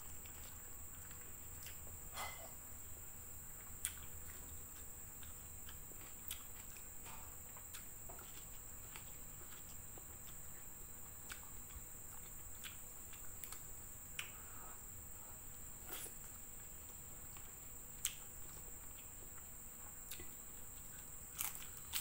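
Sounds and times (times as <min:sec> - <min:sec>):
steady high-pitched hiss: 0:00.0 - 0:22.0
chewing clicks and smacks: 0:03.7 - 0:14.4, 0:17.3 - 0:19.5, 0:20.1 - 0:22.0.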